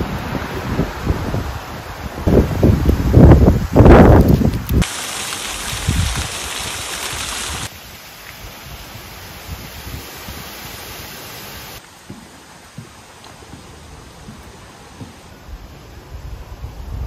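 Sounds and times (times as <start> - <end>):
outdoor ambience hiss: 0.0 - 17.0
water trickling into pond: 4.2 - 12.0.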